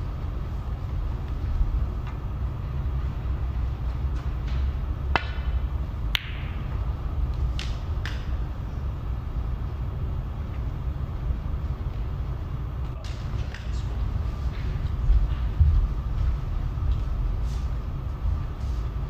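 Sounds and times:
steady low hum: 0.0s - 19.0s
snooker cue and balls clicking: 3.9s - 8.6s.

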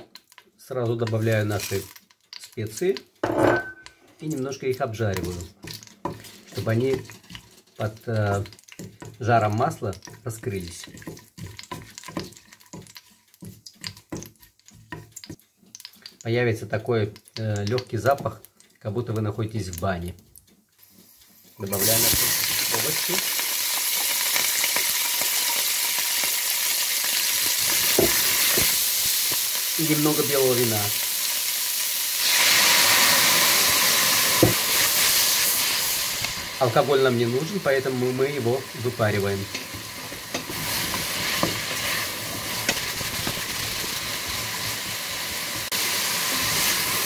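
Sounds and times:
vegetables sizzling in hot oil: 0.0s - 20.2s, 20.8s - 47.0s
wooden spatula clicking and scraping: 0.0s - 30.8s, 34.2s - 45.8s
wooden spatula knocking pot: 8.2s - 15.4s.

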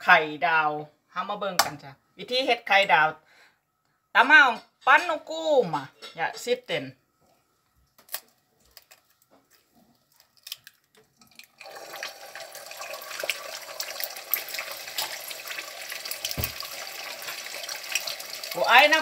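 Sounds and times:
egg cracking clicks: 8.0s - 11.6s
egg sizzling in hot oil: 11.2s - 19.0s.

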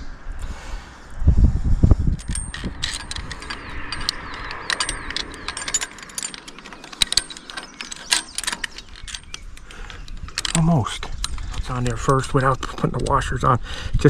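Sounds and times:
metallic clicks and rattles of hardware: 2.2s - 13.2s.

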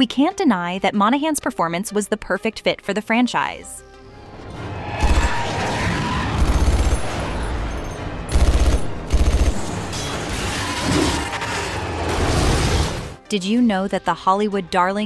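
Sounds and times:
action film soundtrack: 0.0s - 15.0s
automatic gunfire: 6.4s - 7.2s, 8.3s - 10.0s.

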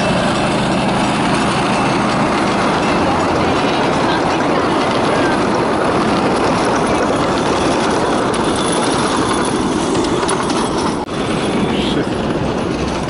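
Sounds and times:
miniature train engine running: 0.0s - 13.0s.

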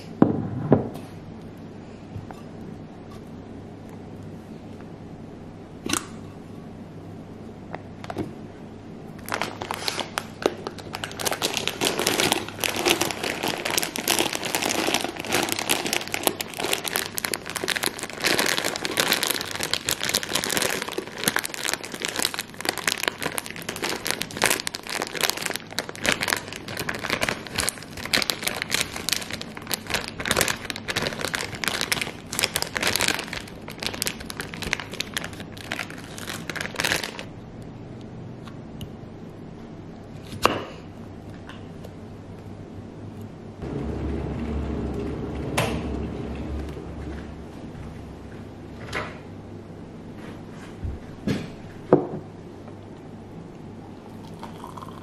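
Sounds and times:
plastic packet crinkling: 9.2s - 37.3s
sugar pouring into glass jar: 54.2s - 55.0s.

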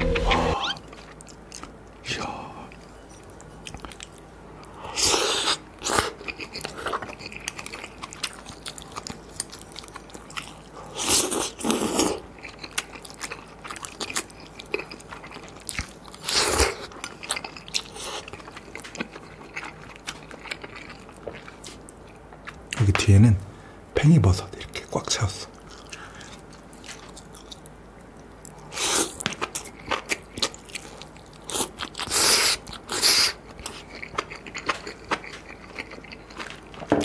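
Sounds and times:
wet chewing clicks: 29.2s - 36.9s.

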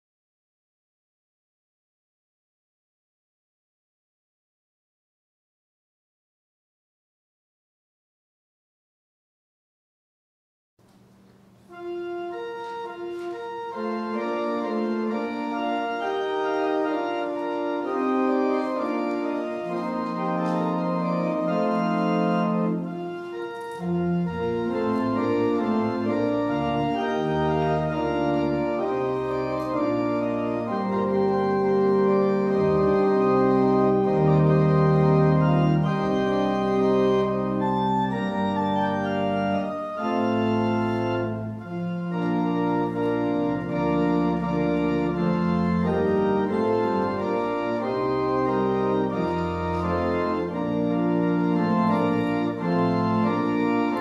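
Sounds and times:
organ playing held chords: 11.5s - 54.0s.

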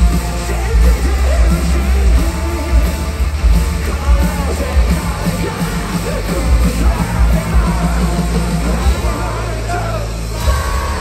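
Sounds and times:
heavy drums: 0.0s - 11.0s
live rock band playing: 0.0s - 11.0s
person singing: 0.0s - 11.0s.

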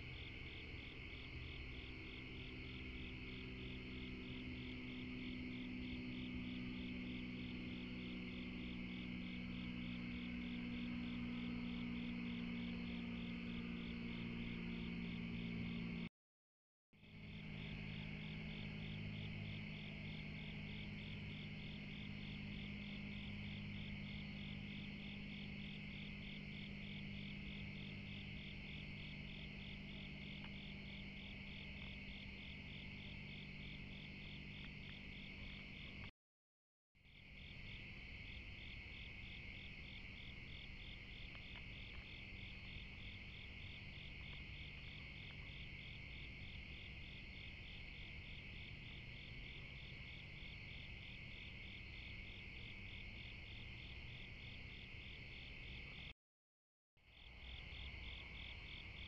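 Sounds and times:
crickets chirping: 0.0s - 16.1s, 17.0s - 36.1s, 37.1s - 56.1s, 57.1s - 59.0s
faint low hum: 0.0s - 16.1s, 17.0s - 36.1s.

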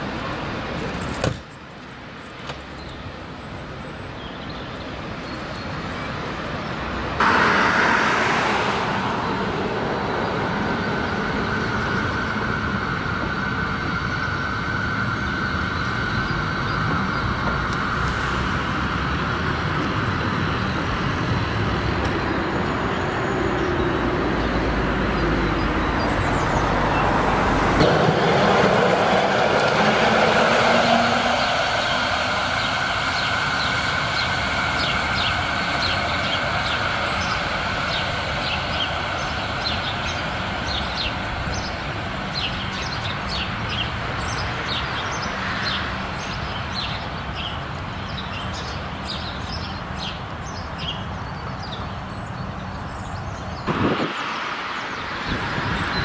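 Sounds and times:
tram running along track: 0.0s - 56.0s
tram motor whine: 7.0s - 50.0s.

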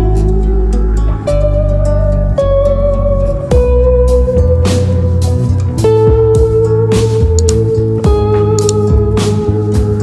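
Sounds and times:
instrumental music with guitar: 0.0s - 10.0s.

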